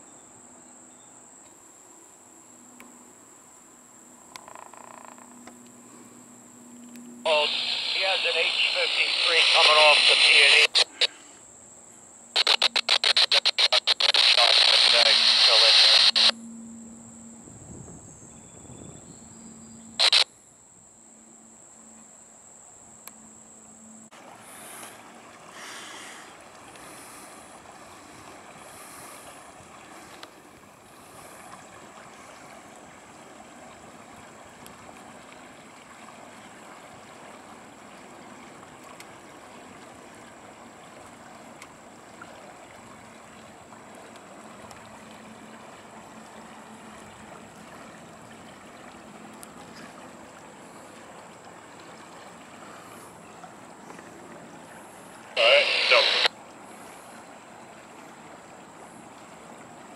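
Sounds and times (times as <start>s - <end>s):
high-pitched insect whine: 0.0s - 6.9s, 10.9s - 13.8s, 16.3s - 25.0s
faint steady rushing noise: 5.6s - 17.7s, 20.0s - 35.2s, 42.9s - 59.9s
scanner radio burst: 7.3s - 11.3s, 12.3s - 16.4s, 20.0s - 20.3s, 55.4s - 56.3s.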